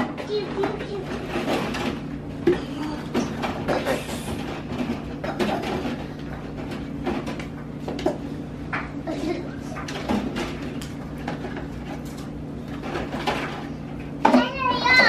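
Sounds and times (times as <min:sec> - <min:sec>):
dishes knocking and clattering: 0:00.0 - 0:15.0
steady low hum: 0:00.0 - 0:15.0.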